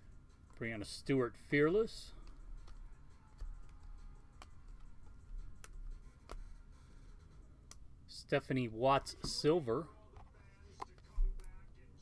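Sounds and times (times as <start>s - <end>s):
trading cards ticking: 1.5s - 7.8s.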